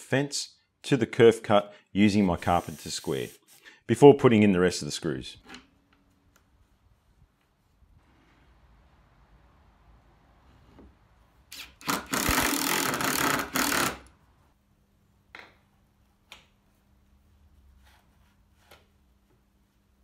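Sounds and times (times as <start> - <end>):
cordless drill driving screw: 11.5 - 14.1.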